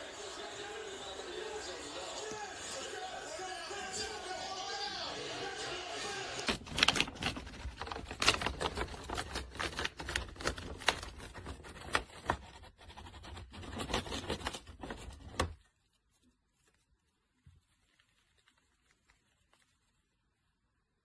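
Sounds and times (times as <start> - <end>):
bird tearing paper bag: 6.4 - 20.3.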